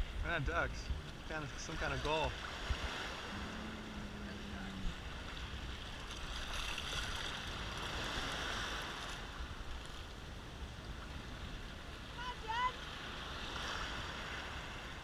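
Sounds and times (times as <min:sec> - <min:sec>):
small waves breaking: 0:00.0 - 0:15.0
low rumble: 0:02.8 - 0:06.3.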